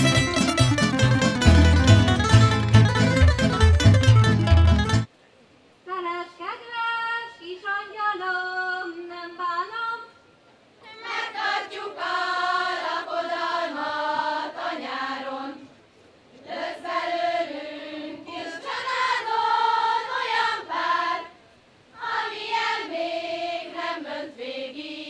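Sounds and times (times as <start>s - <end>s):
women and girls singing: 10.8s - 15.8s, 16.4s - 21.4s, 22.0s - 25.0s.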